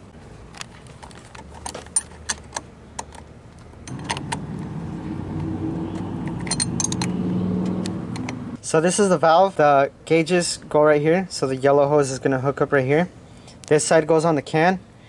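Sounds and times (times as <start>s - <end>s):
low engine-like hum: 3.6s - 8.6s
metallic clinks of wrench: 6.3s - 7.2s.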